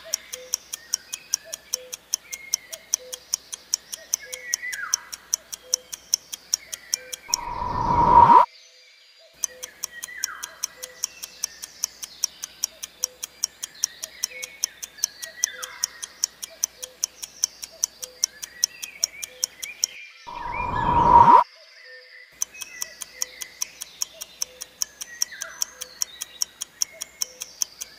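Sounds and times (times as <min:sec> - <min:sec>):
faint chirping: 0:00.0 - 0:08.5, 0:09.3 - 0:21.4, 0:22.4 - 0:27.9
quick clock ticks: 0:00.0 - 0:08.5, 0:09.4 - 0:21.4, 0:22.4 - 0:27.9
rising whoosh: 0:07.3 - 0:08.5, 0:20.3 - 0:21.4.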